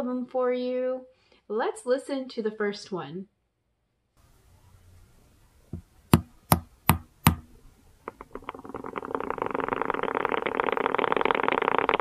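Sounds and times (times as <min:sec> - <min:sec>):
spider tapping: 0:05.8 - 0:07.5.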